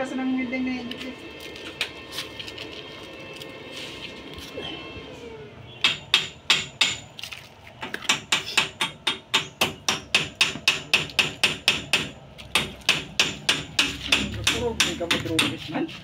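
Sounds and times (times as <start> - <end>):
hammer blows ringing: 5.8 - 7.1, 8.1 - 15.6.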